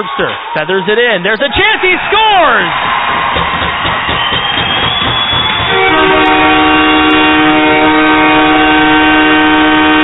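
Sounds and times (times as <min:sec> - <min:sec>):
multi-tone goal horn: 0:05.6 - 0:10.0.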